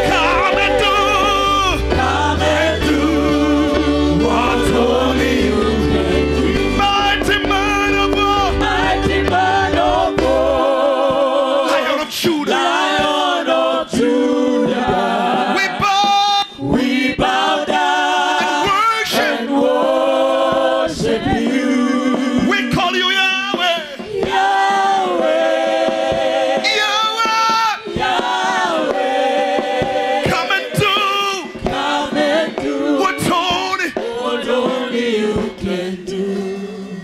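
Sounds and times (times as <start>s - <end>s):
low bass accompaniment: 0.0s - 11.5s
group singing gospel: 0.0s - 37.0s.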